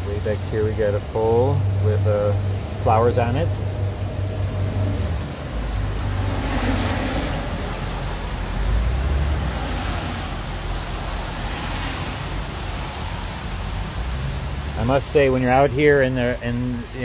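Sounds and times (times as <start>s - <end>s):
low traffic rumble: 0.0s - 17.0s
tyres hissing on wet road: 0.0s - 17.0s.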